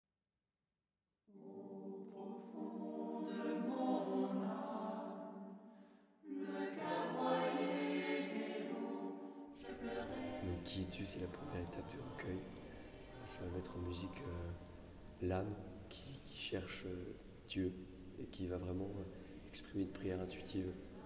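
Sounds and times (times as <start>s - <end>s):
choir singing: 1.3s - 15.8s.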